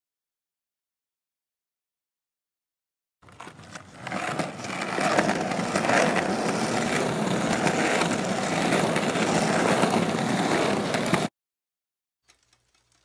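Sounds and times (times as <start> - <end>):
skateboard wheels rolling on concrete: 3.2 - 11.3.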